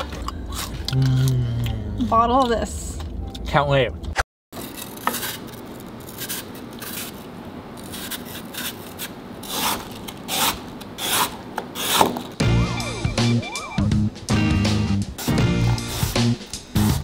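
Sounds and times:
music: 0:00.0 - 0:02.1, 0:12.4 - 0:17.0.

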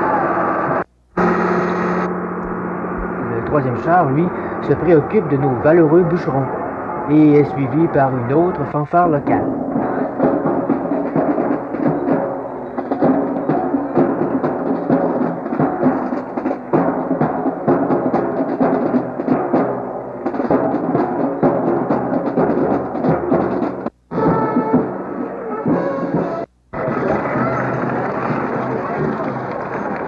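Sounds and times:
drums beating: 0:00.7 - 0:30.0
brass band playing march: 0:09.1 - 0:30.0.

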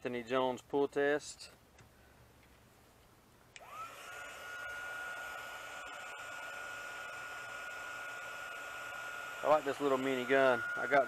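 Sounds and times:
heat gun fan whine: 0:03.5 - 0:11.0.

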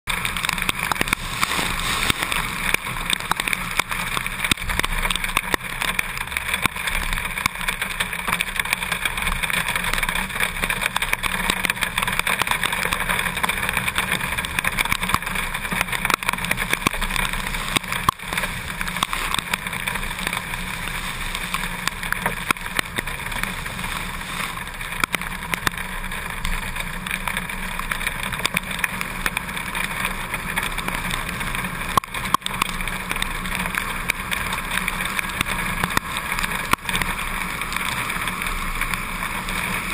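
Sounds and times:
tyre spray rushing: 0:01.0 - 0:03.1.

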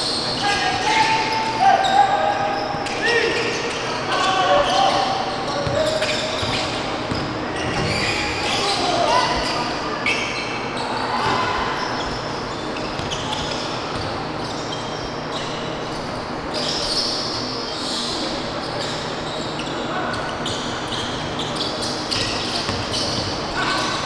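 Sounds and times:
players' voices: 0:00.0 - 0:24.0
sneakers squeaking: 0:00.0 - 0:24.0
basketball dribbling: 0:05.6 - 0:08.0.

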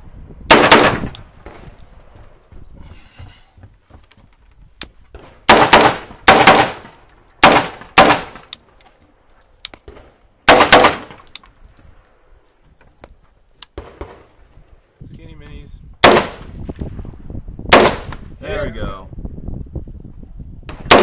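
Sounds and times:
rifle shots: 0:00.5 - 0:01.6, 0:05.4 - 0:08.5, 0:09.9 - 0:11.2, 0:16.0 - 0:16.6, 0:17.7 - 0:18.2, 0:20.7 - 0:21.0.

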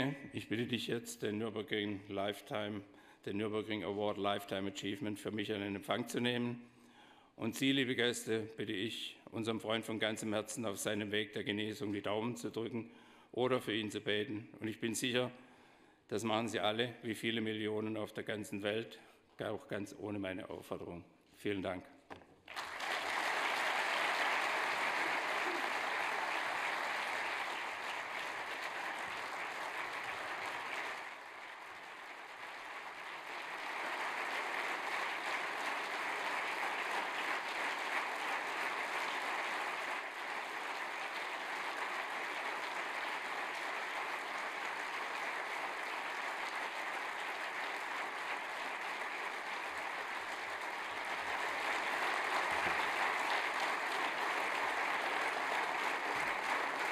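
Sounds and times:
audience applauding: 0:22.5 - 0:56.9.

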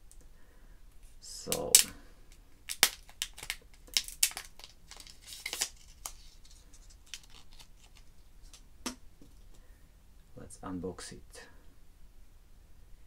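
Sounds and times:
plastic wrap crinkling: 0:02.6 - 0:08.6.

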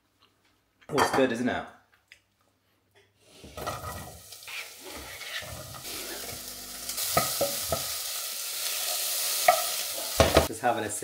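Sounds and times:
vegetables sizzling in a saucepan: 0:03.3 - 0:10.5
knife scraping onion into pan: 0:03.5 - 0:08.0.

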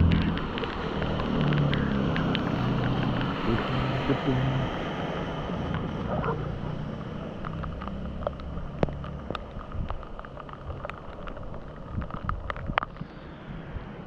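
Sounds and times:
steady rain: 0:00.0 - 0:14.0
wind buffeting microphone: 0:09.6 - 0:13.0.

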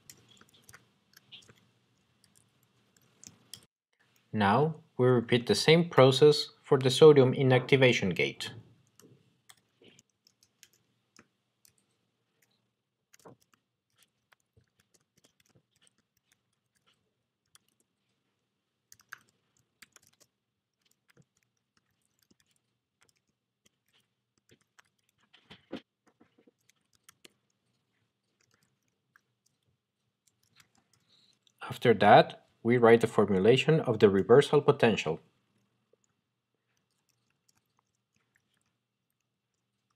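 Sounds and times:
keyboard typing: 0:00.0 - 0:04.3, 0:08.8 - 0:18.1, 0:18.8 - 0:31.6, 0:36.0 - 0:39.9.

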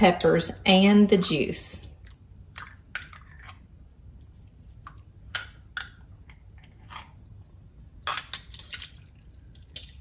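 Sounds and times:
soft wet squishes: 0:01.8 - 0:02.8, 0:07.8 - 0:10.0.

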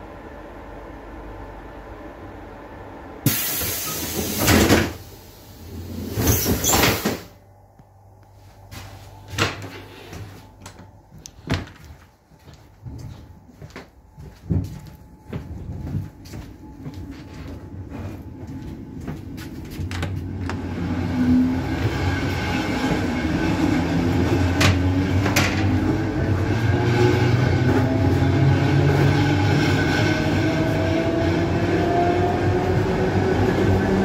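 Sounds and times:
train low steady hum: 0:00.0 - 0:34.0
train door closing rush: 0:03.2 - 0:07.4.

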